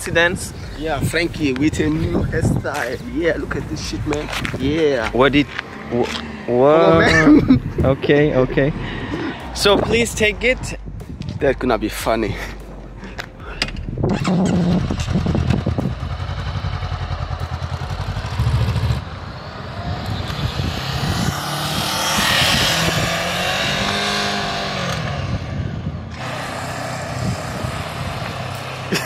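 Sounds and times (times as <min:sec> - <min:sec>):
motorcycle engine passing by: 0:05.4 - 0:07.2, 0:14.2 - 0:29.0.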